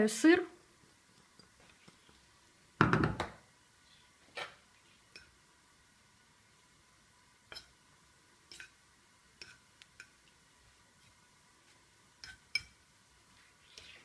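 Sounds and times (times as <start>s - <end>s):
fork mixing mashed potato: 0.8s - 2.3s, 8.4s - 14.0s.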